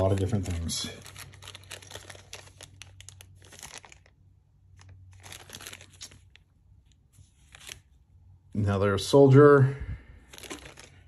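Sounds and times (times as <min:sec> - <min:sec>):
plastic bags crinkling: 0:00.0 - 0:07.9, 0:10.2 - 0:11.0.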